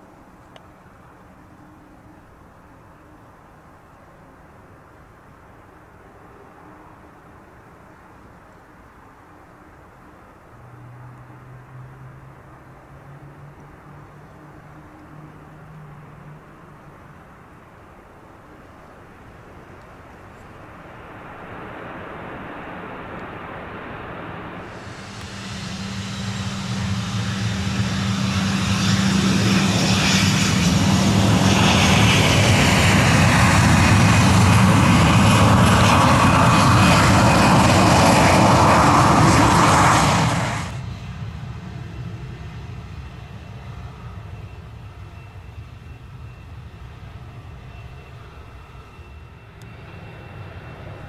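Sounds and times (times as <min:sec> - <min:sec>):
jet engines roaring: 0:18.4 - 0:51.0
falling engine whine: 0:20.3 - 0:51.0.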